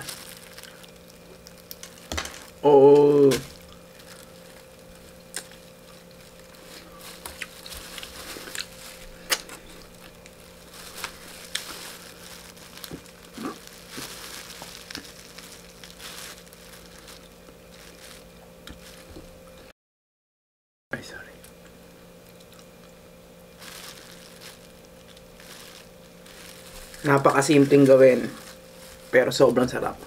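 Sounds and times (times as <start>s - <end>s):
fried chicken skin crunching: 0.0s - 19.2s
plastic glove crinkling: 0.0s - 19.4s, 23.4s - 30.0s
faint steady hum: 0.0s - 19.7s, 20.9s - 30.0s.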